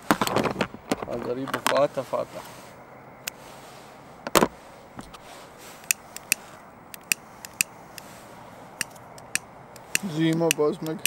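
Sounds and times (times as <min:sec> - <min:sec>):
fishing tackle clicking: 0:05.8 - 0:07.7, 0:08.8 - 0:11.0
small irregular clicks and ticks: 0:05.8 - 0:08.1, 0:08.8 - 0:11.0.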